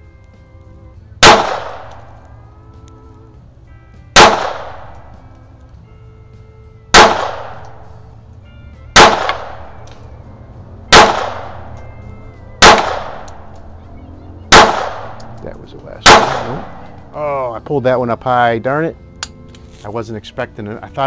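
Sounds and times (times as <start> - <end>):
pistol shots with echo: 1.2 - 2.2, 4.2 - 5.2, 6.9 - 7.9, 8.9 - 10.0, 10.9 - 11.8, 12.6 - 13.7, 14.5 - 15.4, 16.0 - 17.1.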